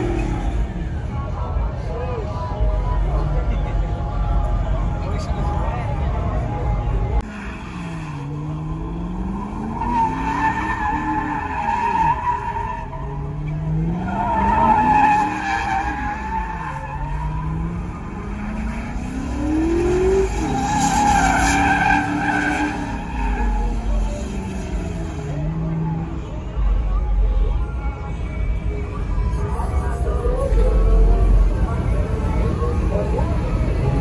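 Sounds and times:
car engine revving: 0:07.1 - 0:26.4.

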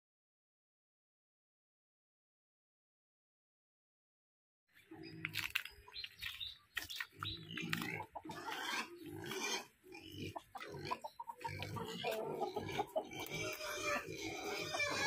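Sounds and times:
pigs grunting: 0:07.0 - 0:15.0.

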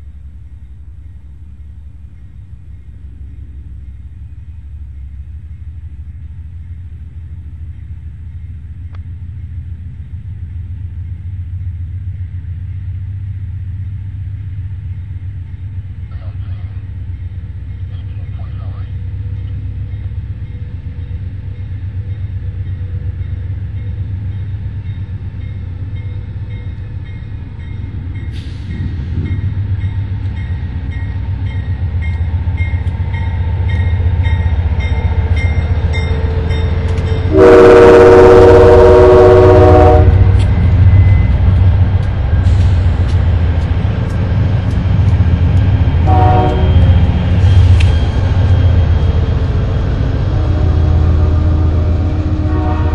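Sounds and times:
diesel locomotive engine rumble: 0:00.0 - 0:52.9
train horn blast: 0:34.9 - 0:40.7, 0:46.0 - 0:47.0, 0:49.9 - 0:52.9.

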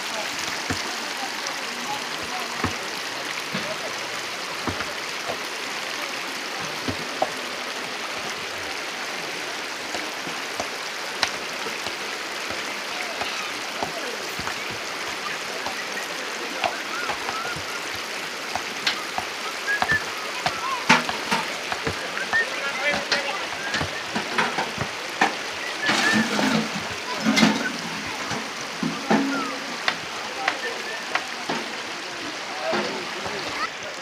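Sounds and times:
stones clacking together: 0:10.6 - 0:12.6, 0:16.7 - 0:28.3.

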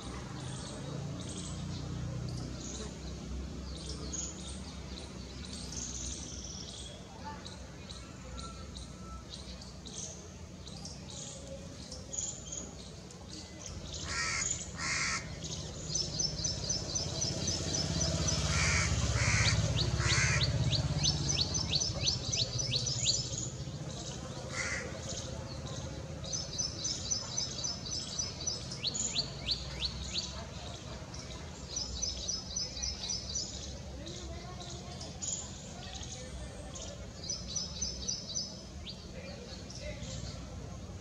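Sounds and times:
harsh bird cawing: 0:14.0 - 0:15.4, 0:18.5 - 0:20.6.

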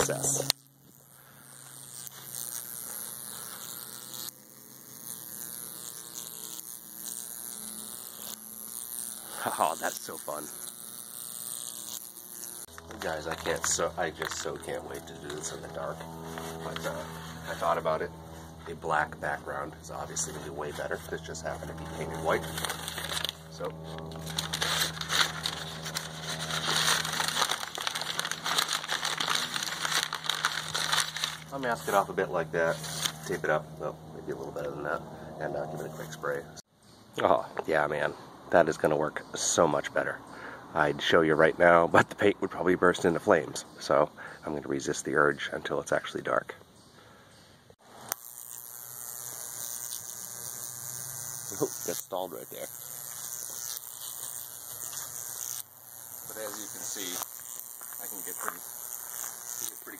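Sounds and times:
electric arc buzzing: 0:00.0 - 0:36.7, 0:47.7 - 0:59.9
paper crinkling and rustling: 0:21.7 - 0:32.1, 0:32.7 - 0:33.3.

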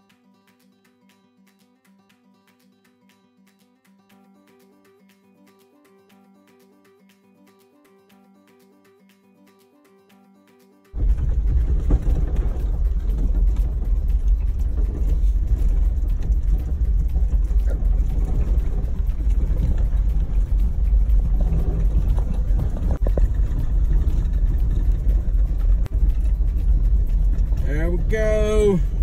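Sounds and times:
knocks and rattles: 0:11.0 - 0:27.7
vehicle engine and road rumble: 0:11.0 - 0:29.0.

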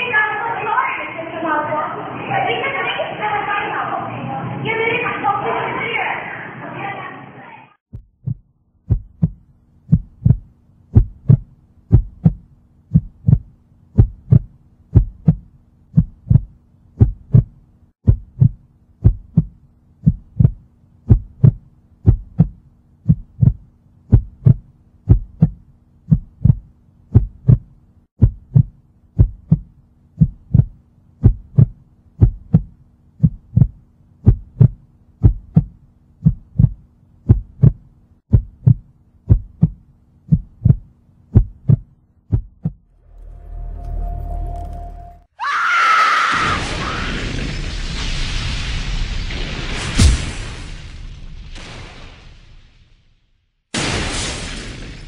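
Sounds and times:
heartbeat double thump: 0:07.9 - 0:42.9.

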